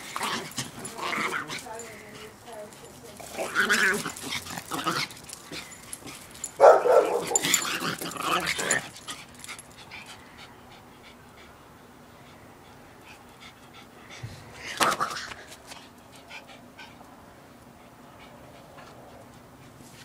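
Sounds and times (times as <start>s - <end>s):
small dogs play-fighting: 0.0s - 20.0s.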